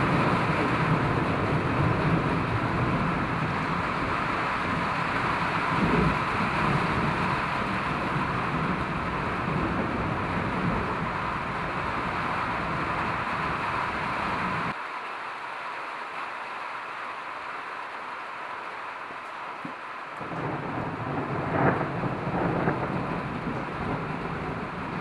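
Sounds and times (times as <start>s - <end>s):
low rolling thunder: 0.0s - 14.7s, 20.2s - 25.0s
steady rain hiss: 0.0s - 25.0s.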